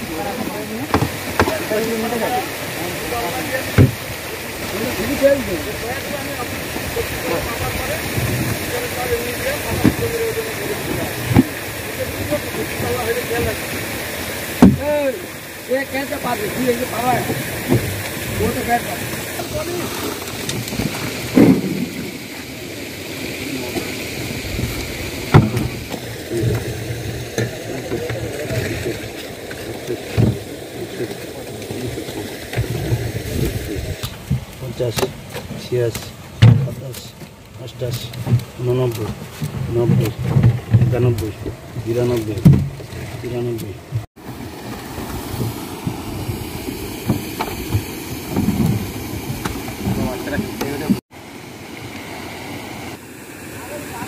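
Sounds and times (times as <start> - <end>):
rushing outdoor noise: 0.0 - 54.0
wind buffeting microphone: 32.6 - 34.5.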